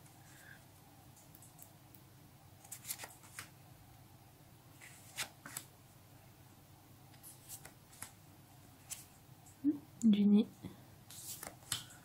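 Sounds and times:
paper stickers sliding and flicking: 2.6 - 3.5, 7.1 - 8.2, 11.1 - 12.0.

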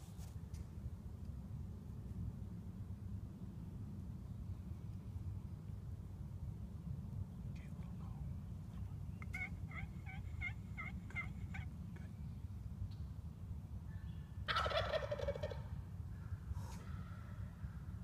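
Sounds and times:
turkey gobbling: 9.2 - 12.1, 14.5 - 15.8
turkey yelping: 9.2 - 12.1, 14.5 - 15.7.

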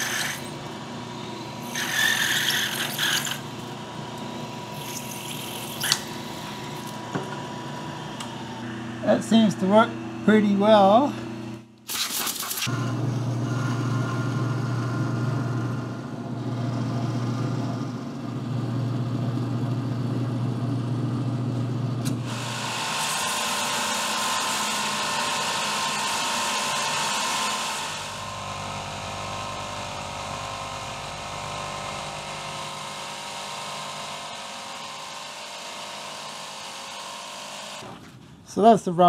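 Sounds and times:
high hissy cutting sound: 0.0 - 0.6, 1.6 - 3.4
power tool motor running: 0.0 - 10.1, 22.2 - 37.8.

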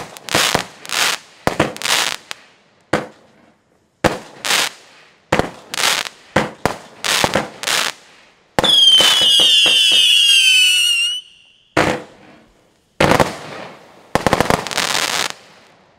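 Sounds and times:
firework shots and bursts: 0.0 - 3.3, 4.0 - 15.8
firework whistle falling in pitch: 8.6 - 11.8.

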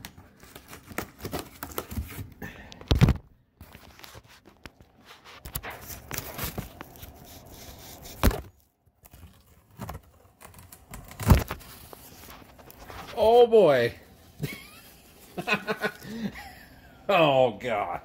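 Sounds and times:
packing paper rustling: 0.0 - 16.3
cardboard box being opened: 5.6 - 13.2.

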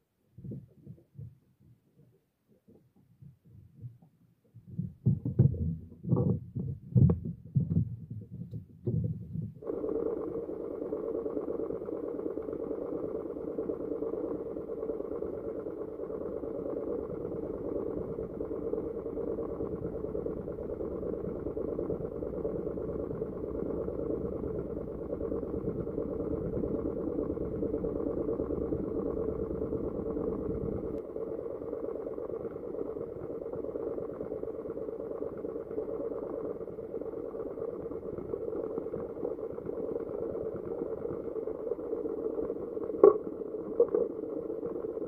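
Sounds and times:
muffled boat engine running: 4.9 - 45.0.

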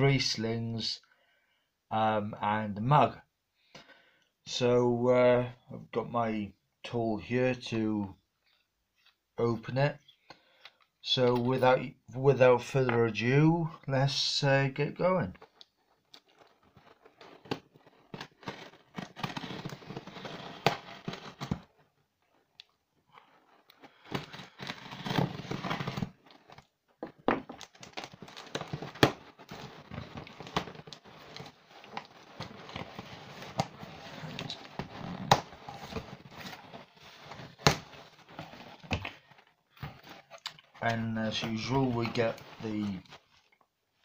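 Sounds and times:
cardboard and tape scraping: 15.4 - 21.8, 23.2 - 26.7, 27.6 - 43.4.

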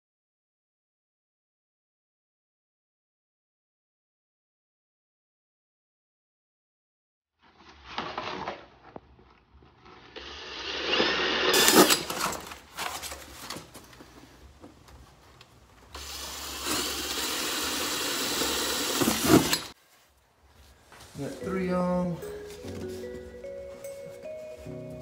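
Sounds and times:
cordless drill drilling: 10.2 - 12.3, 16.0 - 19.8.

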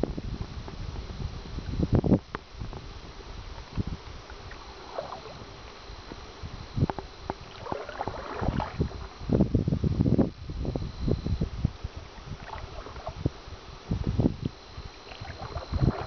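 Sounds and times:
paddle splashes: 3.4 - 6.3, 7.2 - 9.3, 12.0 - 13.5, 14.5 - 16.0.

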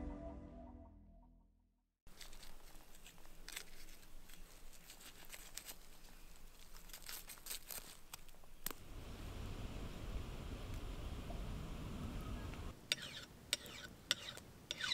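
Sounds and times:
music: 0.0 - 1.6
knife cutting and tearing meat: 2.1 - 8.7.

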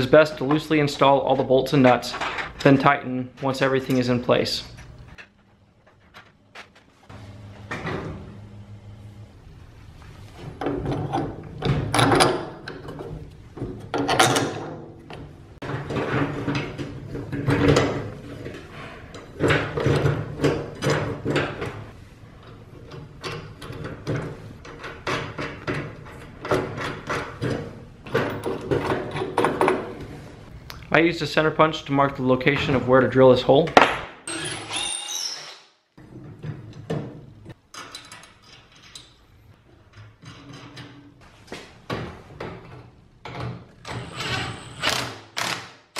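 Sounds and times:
metal hardware clicking and rattling: 37.7 - 41.0.

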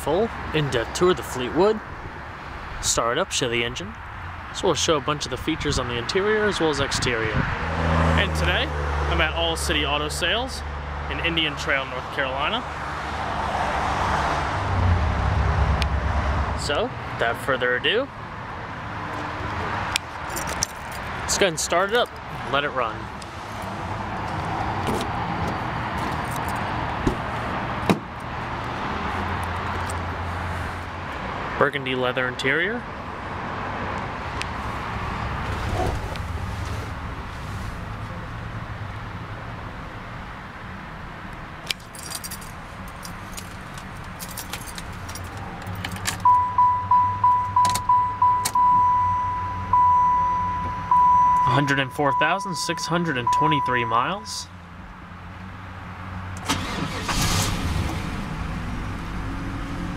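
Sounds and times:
outdoor background noise: 0.0 - 59.9
keys jingling: 20.2 - 21.1, 41.7 - 46.2
car warning chime: 46.2 - 54.5.

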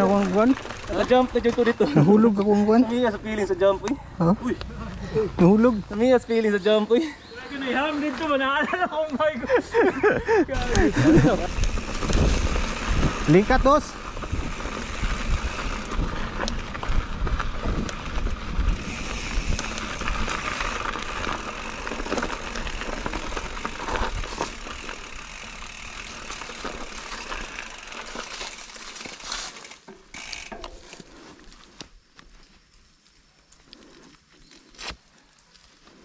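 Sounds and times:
tyres rolling over dirt: 0.0 - 3.8, 7.5 - 32.6
bike rattling: 0.0 - 34.8
wind rumble on microphone: 10.6 - 20.6.

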